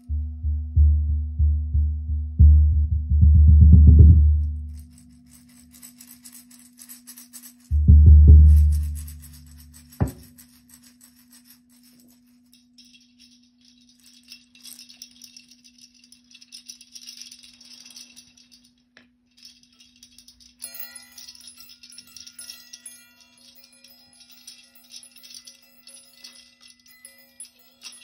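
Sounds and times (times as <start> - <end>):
steady low hum: 0.0 - 5.3
shaker rattling softly: 4.3 - 28.0
small bells ringing: 4.6 - 28.0.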